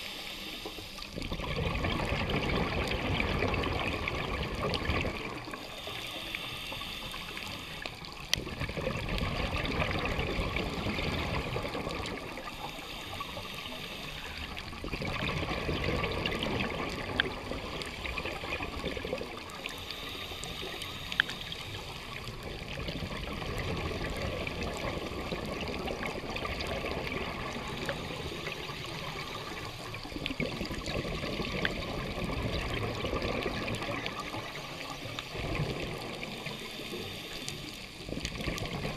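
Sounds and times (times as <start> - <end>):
regulator inhale hiss: 0.0 - 1.2, 5.4 - 8.3, 12.2 - 14.6, 19.4 - 22.4, 27.7 - 30.8, 36.2 - 38.1
bubbling exhaled air: 0.0 - 38.9.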